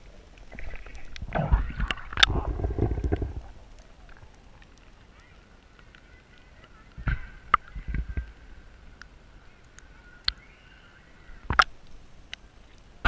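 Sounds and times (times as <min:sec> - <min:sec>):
underwater knocks and thumps: 0:00.5 - 0:03.6.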